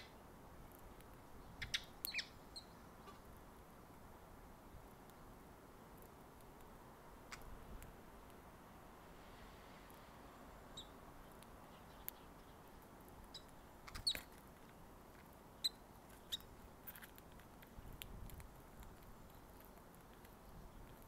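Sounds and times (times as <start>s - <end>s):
sparrow chirps: 1.4s - 3.2s, 10.7s - 14.3s, 15.6s - 16.6s.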